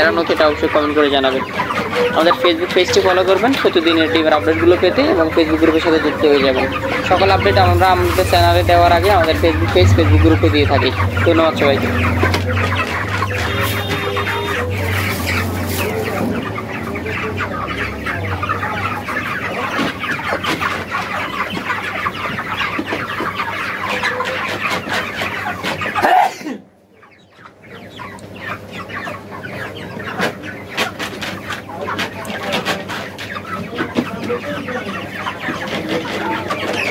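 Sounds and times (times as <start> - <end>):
chickens clucking and peeping: 0.0 - 36.9
low hum: 6.7 - 15.0.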